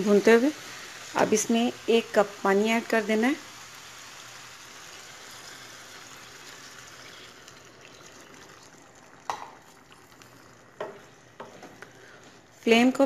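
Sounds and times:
low simmer: 0.0s - 13.0s
water hissing in hot oil: 0.0s - 13.0s.

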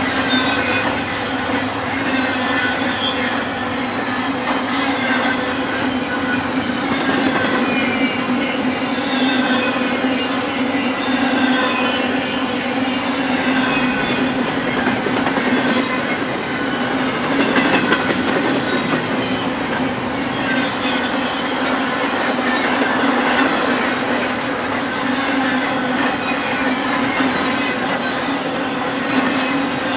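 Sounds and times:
freight train wheels rumbling: 0.0s - 29.9s.

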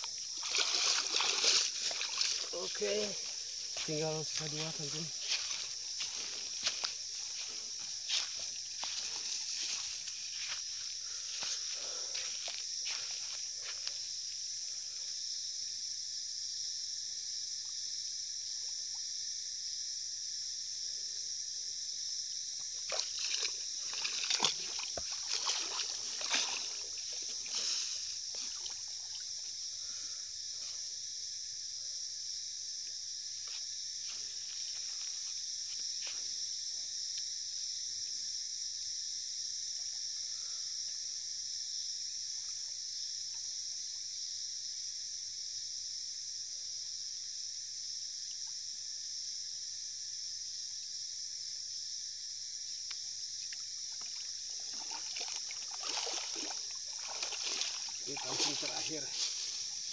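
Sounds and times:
water splashing and sloshing: 0.0s - 13.9s, 22.7s - 30.0s, 53.5s - 59.9s
insect chorus: 0.0s - 59.9s.

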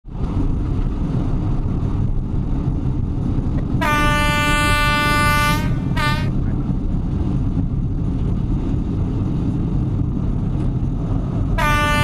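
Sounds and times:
train rumbling: 0.0s - 12.0s
train horn blast: 3.8s - 6.4s, 11.6s - 12.0s.

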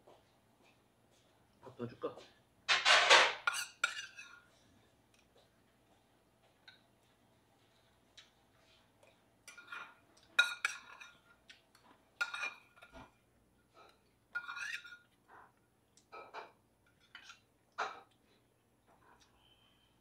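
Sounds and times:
metal spoon clinking in steel bowl: 14.3s - 15.1s.

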